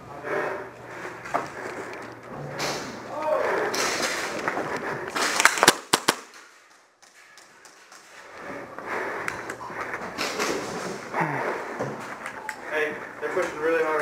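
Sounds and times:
airsoft pistol shots: 5.2s - 6.4s.

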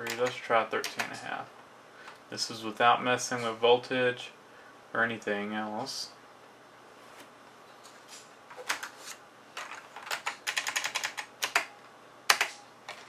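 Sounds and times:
computer keyboard keys clicking: 0.0s - 1.2s, 9.6s - 11.7s, 12.3s - 13.0s.

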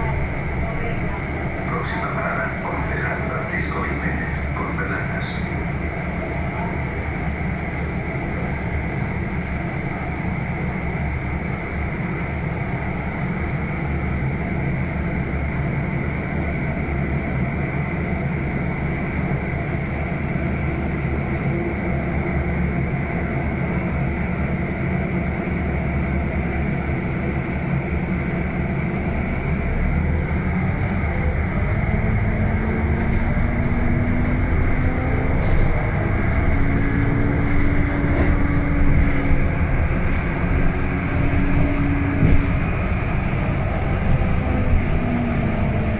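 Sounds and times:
bus engine drone: 0.0s - 45.9s.

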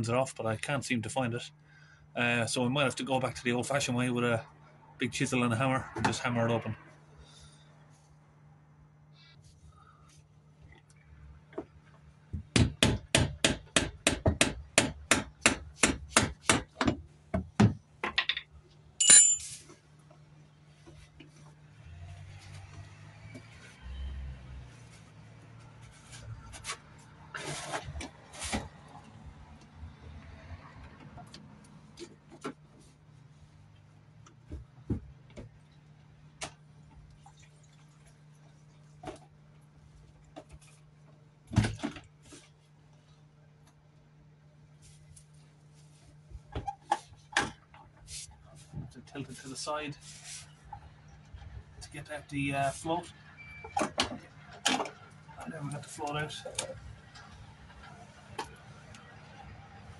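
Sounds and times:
ringing metal clank: 19.0s - 19.5s.

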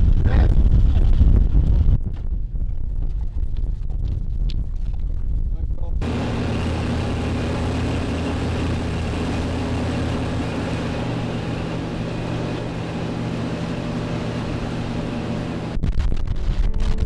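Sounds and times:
wind: 0.0s - 17.0s
boat engine running: 6.0s - 15.8s
churning wake rushing: 6.0s - 15.8s.

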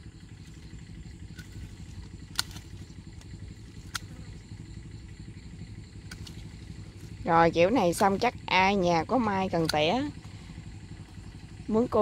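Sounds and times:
low rumble: 0.0s - 12.0s
pruning shears snipping: 0.4s - 4.4s, 6.0s - 10.4s.

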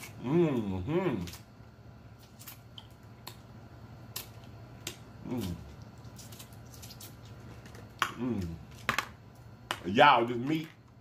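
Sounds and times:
person humming mm: 0.2s - 1.4s, 5.2s - 5.7s, 8.1s - 8.6s.

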